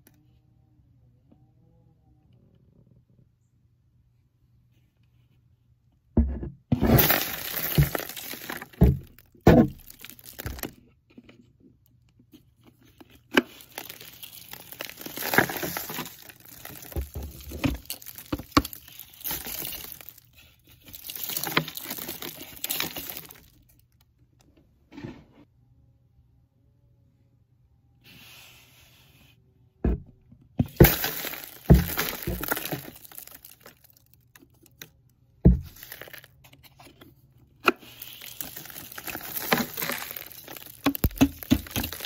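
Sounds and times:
plastic bin knocking: 6.2 - 10.7, 29.8 - 32.9, 39.4 - 42.0
paper and dust rustling out: 13.4 - 23.5, 37.8 - 42.0.

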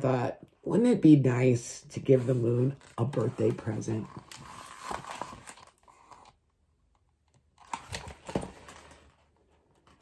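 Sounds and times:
faint paper rustling: 2.2 - 6.4.

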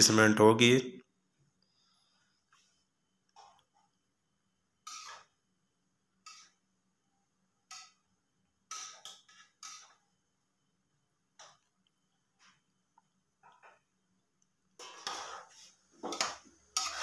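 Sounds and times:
spoon scraping a steel pot: 4.8 - 5.4, 14.8 - 17.0.

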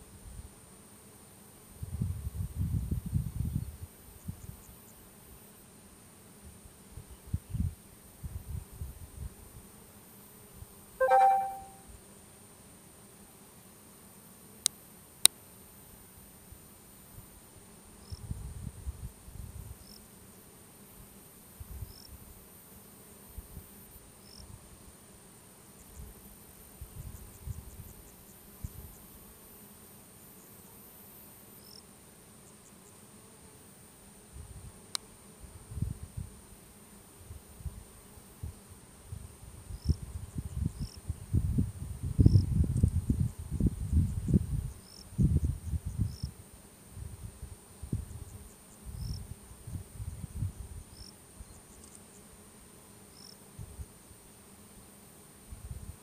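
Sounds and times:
brief chirp: 11.0 - 11.8.

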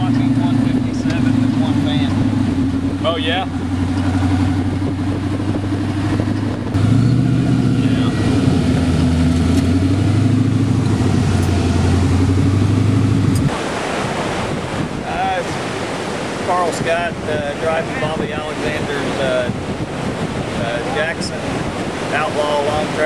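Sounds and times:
buggy engine running: 0.0 - 13.5
wind blowing on microphone: 0.0 - 23.0.

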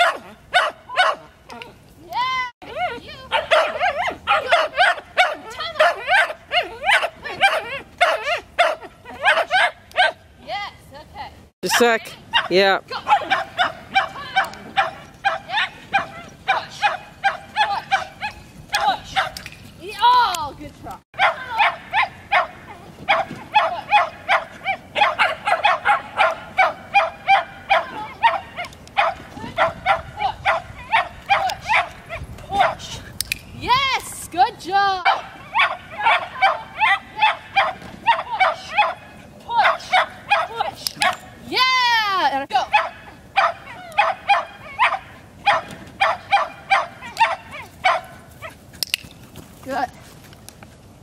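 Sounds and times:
dog barking: 0.0 - 1.3, 3.3 - 10.2, 11.7 - 19.4, 21.2 - 32.8, 35.0 - 41.2, 42.7 - 48.6.

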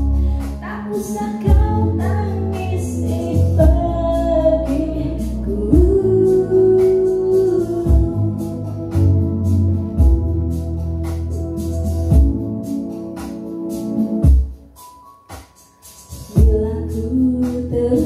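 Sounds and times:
instrumental backing with slow beat: 0.0 - 18.0
woman singing: 0.2 - 9.1, 16.3 - 18.0.

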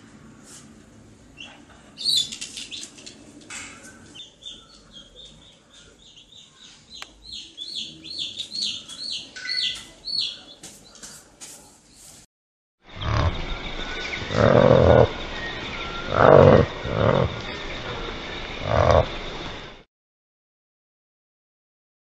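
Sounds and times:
baby chicken peeping: 1.4 - 3.0, 4.0 - 11.2.

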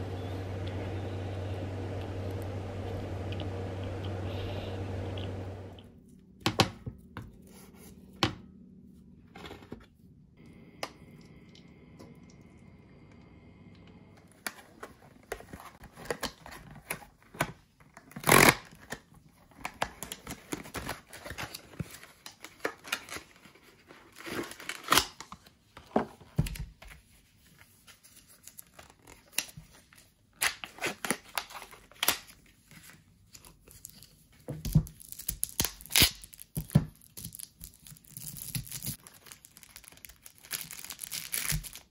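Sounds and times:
cardboard and paper tearing and crinkling: 14.4 - 26.2, 27.0 - 41.9
loud cardboard rip: 18.2 - 18.8.

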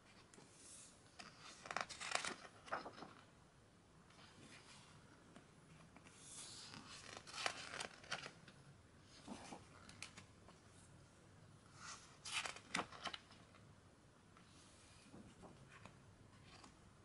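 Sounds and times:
photobook pages rustling: 0.1 - 3.3, 4.1 - 10.8, 11.7 - 13.5, 15.0 - 16.8.

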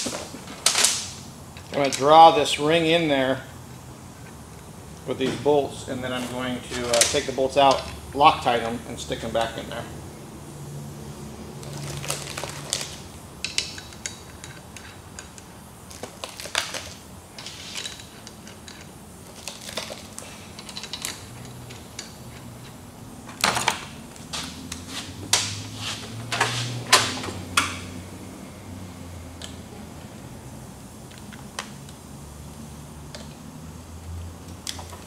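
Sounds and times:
metal bolts clinking and rattling: 17.4 - 22.2.

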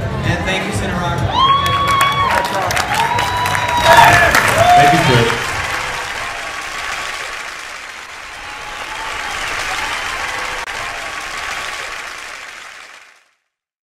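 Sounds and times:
audience applauding: 1.4 - 13.5.

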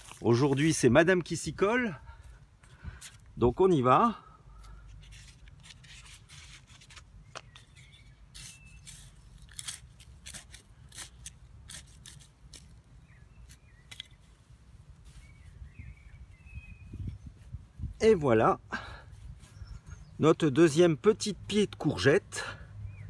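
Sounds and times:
soil patted by hand: 0.0 - 1.0
trowel scraping dry soil: 0.0 - 1.0, 4.6 - 15.6.

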